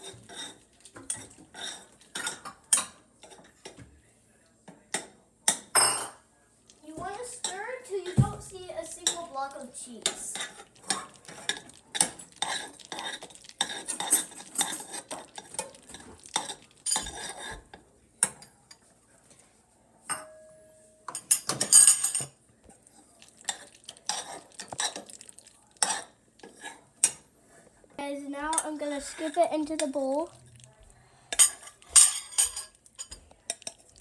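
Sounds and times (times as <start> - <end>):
metal spoon scraping saucepan: 8.8 - 17.7, 25.8 - 27.2.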